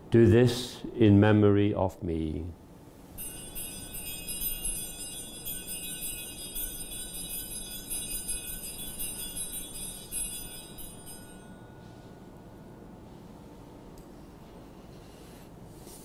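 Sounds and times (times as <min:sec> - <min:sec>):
altar bells jingling: 0:03.2 - 0:12.9.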